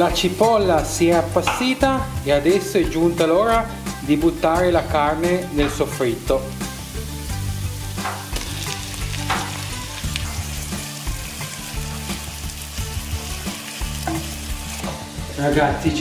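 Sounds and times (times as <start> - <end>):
meat sizzling in oil: 0.0 - 16.0.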